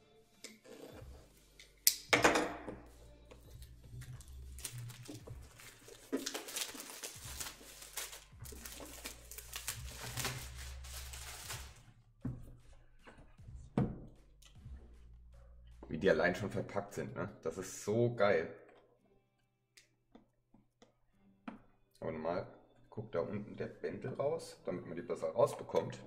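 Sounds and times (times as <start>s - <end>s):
crinkling rustling packaging: 3.6s - 11.9s.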